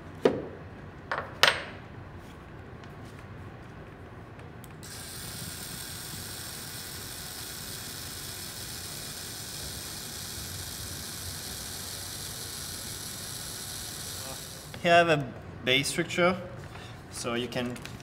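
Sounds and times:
printing pen motor whirring: 0:04.8 - 0:14.8.

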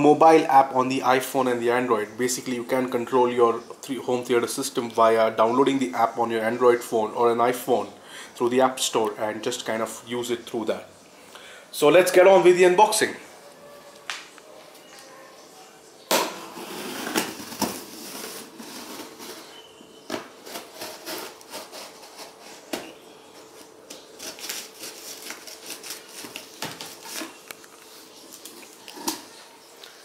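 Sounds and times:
tape and cardboard rustling: 0:16.5 - 0:29.4.

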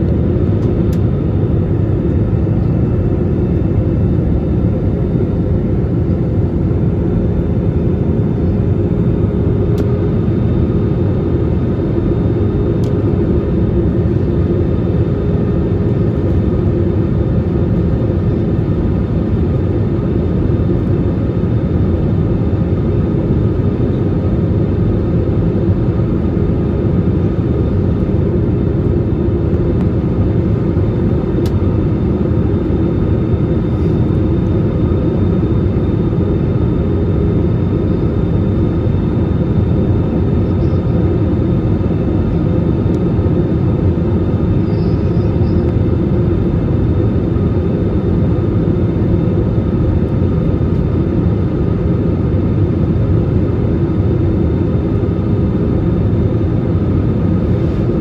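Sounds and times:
faint constant hum: 0:00.0 - 0:58.0
jet engine and air rumble: 0:00.0 - 0:58.0.

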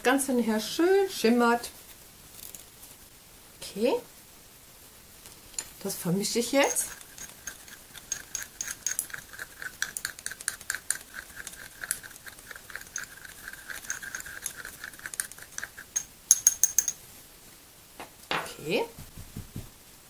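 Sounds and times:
metal tool clinking in glass jar: 0:06.6 - 0:17.0.

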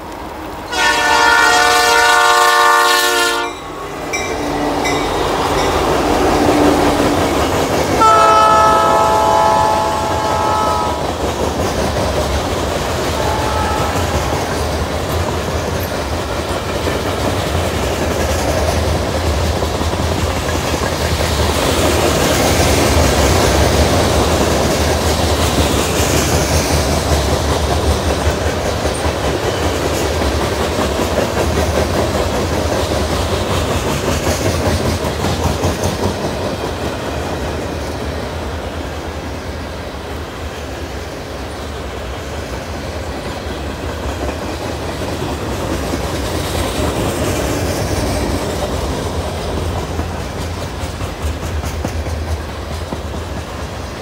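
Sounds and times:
train rumbling past: 0:00.0 - 0:54.0
wheels clacking on rails: 0:00.0 - 0:54.0
locomotive horn blasts: 0:00.7 - 0:05.0, 0:08.0 - 0:11.1, 0:13.1 - 0:14.6.

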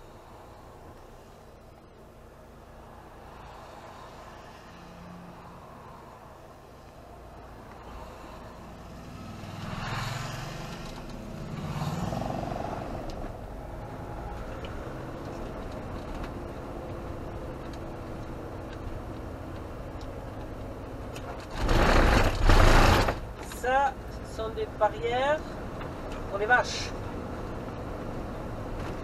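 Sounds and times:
van cabin road noise: 0:00.0 - 0:29.0
motorcycles passing: 0:03.0 - 0:21.0.

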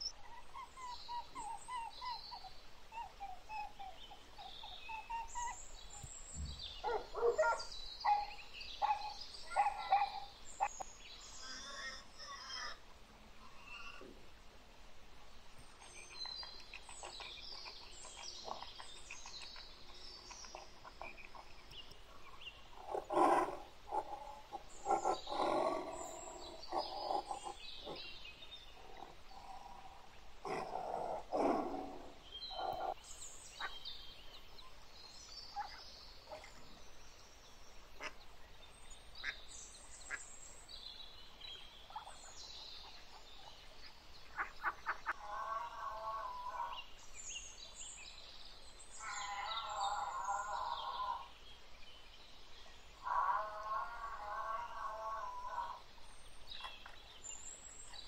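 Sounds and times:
high chirping animal calls: 0:00.0 - 0:12.8, 0:22.8 - 0:28.2, 0:28.8 - 0:33.0.

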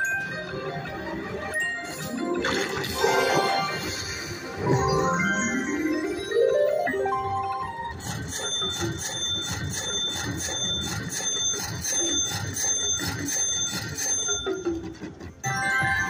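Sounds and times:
slot machine dings: 0:00.0 - 0:16.0
slot machine music jingle: 0:00.0 - 0:16.0.

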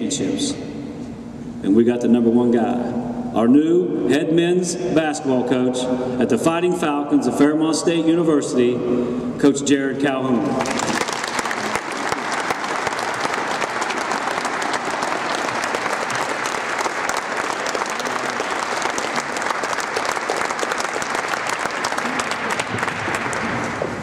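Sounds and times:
audience applause: 0:10.6 - 0:24.0.

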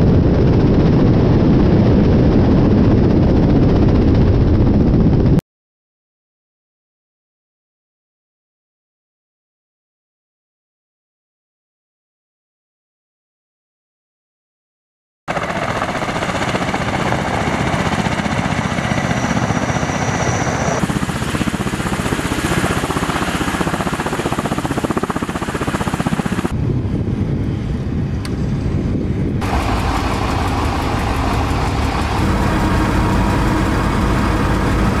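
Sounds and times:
helicopter rotors and engines: 0:00.0 - 0:05.4, 0:15.3 - 0:35.0.

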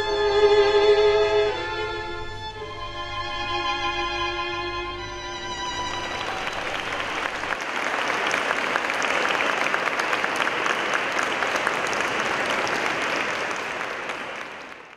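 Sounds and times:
orchestral music: 0:00.0 - 0:07.5
audience applause: 0:05.6 - 0:14.9.

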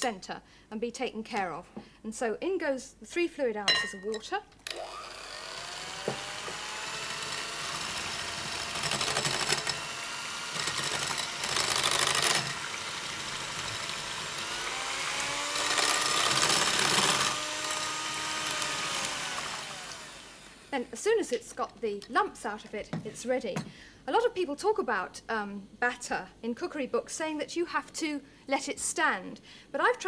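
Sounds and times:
electric hand whisk whirring: 0:04.7 - 0:20.7.

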